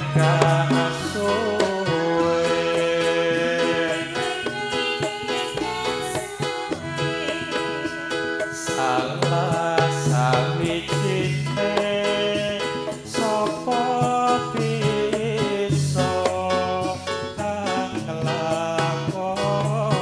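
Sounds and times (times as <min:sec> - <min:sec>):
woman singing into a microphone: 0:00.0 - 0:11.4
drums and percussion: 0:00.0 - 0:20.0.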